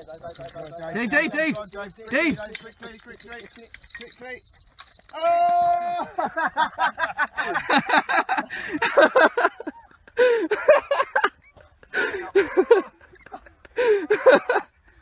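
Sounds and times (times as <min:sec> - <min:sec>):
people laughing hard: 0:05.3 - 0:14.8.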